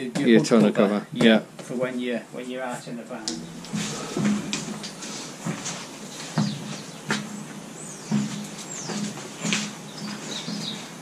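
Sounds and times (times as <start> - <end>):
footsteps on concrete floor: 3.3 - 11.0.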